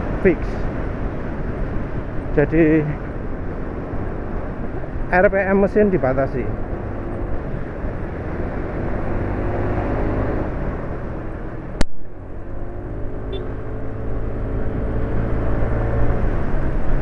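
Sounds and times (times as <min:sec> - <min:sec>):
wind and road noise: 0:00.0 - 0:17.0.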